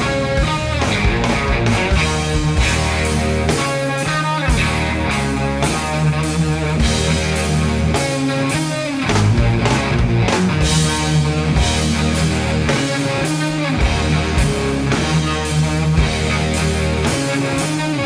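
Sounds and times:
bass guitar: 0.0s - 18.0s
drum kit with cymbal hits: 0.0s - 18.0s
electric guitar lead: 0.0s - 18.0s.

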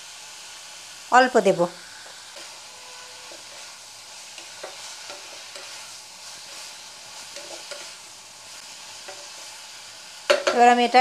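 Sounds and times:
vegetables sizzling in oil: 0.0s - 11.0s
spatula scraping and knocking pan: 2.0s - 8.0s, 9.0s - 9.5s, 10.3s - 10.7s.

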